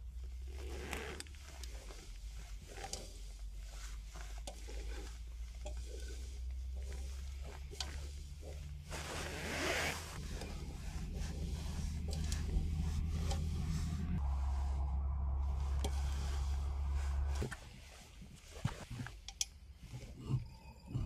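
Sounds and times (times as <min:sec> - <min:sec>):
water beads rustling in metal pot: 0:00.0 - 0:14.2
low rumble: 0:10.1 - 0:18.4.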